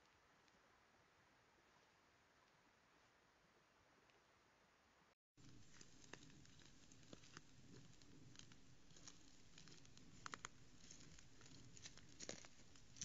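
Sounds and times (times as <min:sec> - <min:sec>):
low steady hiss: 0:00.0 - 0:13.0
deer stepping on leaf litter: 0:05.5 - 0:13.0.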